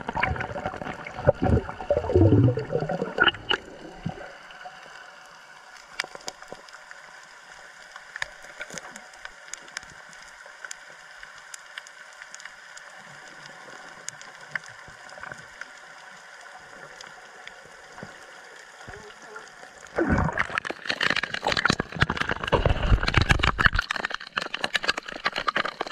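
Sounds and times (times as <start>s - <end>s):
water gurgling and bubbling: 0.0s - 4.7s, 19.9s - 25.9s
small clicks and crackles: 0.0s - 25.9s.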